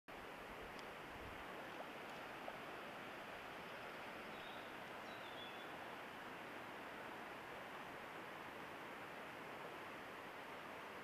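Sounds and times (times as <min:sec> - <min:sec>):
river water rushing: 0:00.1 - 0:11.0
faint clicks: 0:00.7 - 0:00.9.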